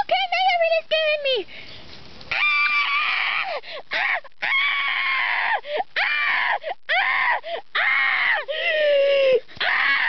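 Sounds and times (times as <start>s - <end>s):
person screeching and screaming: 2.3s - 10.0s.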